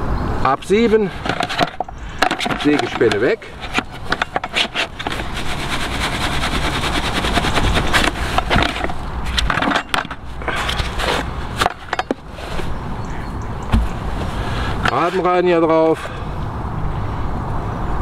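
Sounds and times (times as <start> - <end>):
sieve rattling with sawdust: 0.8 - 10.2
sieve knocks and scrapes: 1.1 - 12.7.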